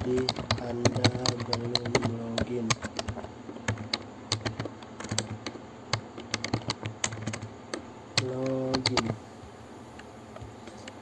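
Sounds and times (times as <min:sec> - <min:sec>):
keyboard keystroke clicks: 0:00.0 - 0:09.2.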